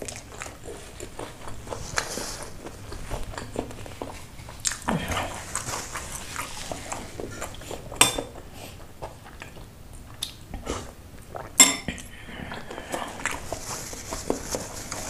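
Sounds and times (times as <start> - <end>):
eating and sipping noises: 0.0 - 15.0
metal spoon clinking ceramic bowl: 8.0 - 8.3, 11.6 - 11.9.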